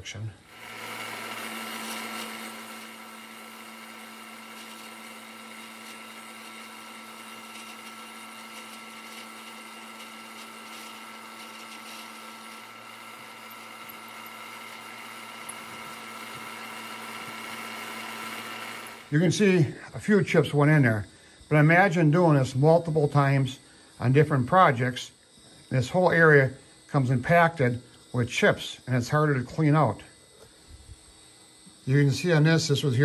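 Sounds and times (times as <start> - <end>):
milling machine hum and whine: 0.0 - 19.8.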